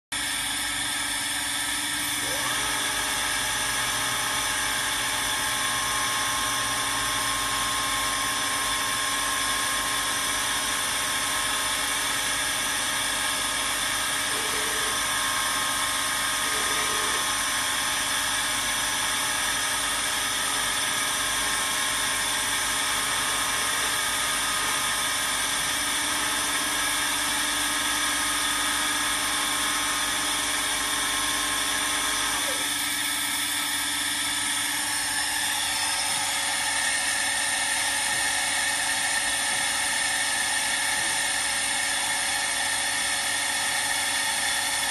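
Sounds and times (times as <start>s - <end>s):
grinding machine hum and whine: 0.1s - 44.9s.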